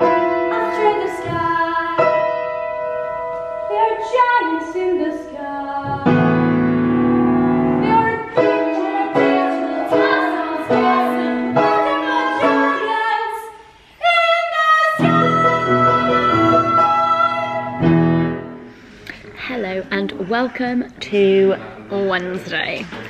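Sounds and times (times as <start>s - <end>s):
piano accompaniment: 0.0s - 13.6s, 15.0s - 18.9s
women singing: 0.5s - 2.4s, 3.7s - 6.4s, 7.7s - 17.9s.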